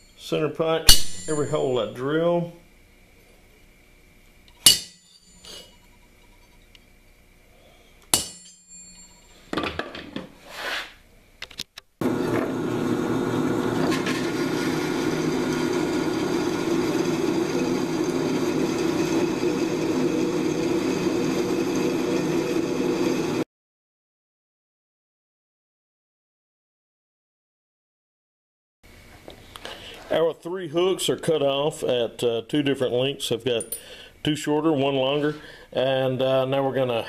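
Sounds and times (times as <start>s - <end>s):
hammer striking center punch: 0.9s - 1.7s, 4.6s - 5.3s, 8.1s - 8.7s
drill press cutting steel pipe: 12.0s - 23.4s.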